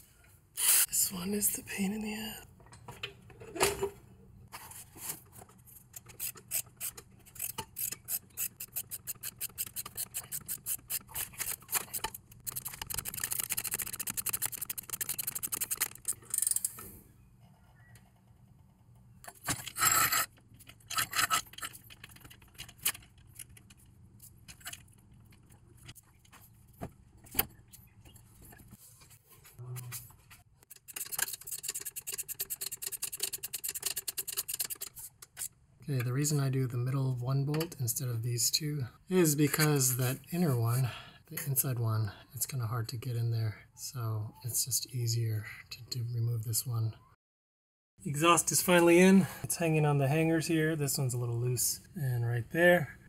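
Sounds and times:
tools scraping on metal: 19.3s - 21.8s.

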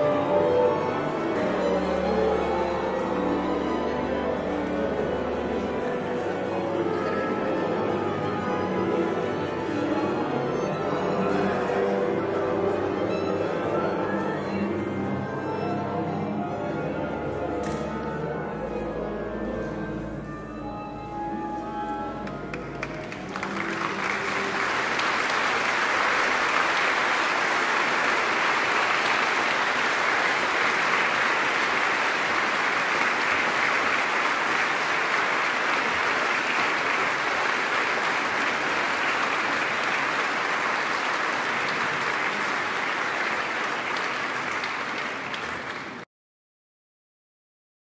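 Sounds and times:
audience applause: 22.2s - 46.1s.

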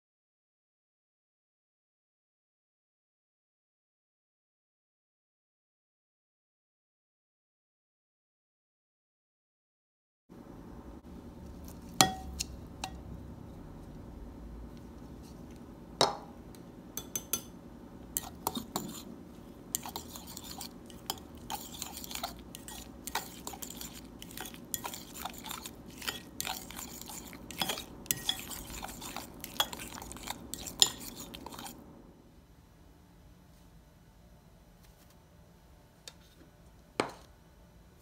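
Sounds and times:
utensil scraping ceramic bowl: 18.1s - 31.9s.

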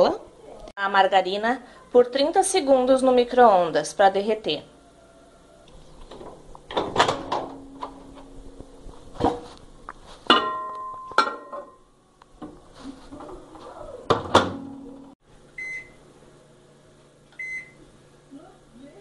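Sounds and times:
microwave door shutting: 6.1s - 8.2s, 14.1s - 14.8s
short keypad beep: 17.4s - 17.8s.

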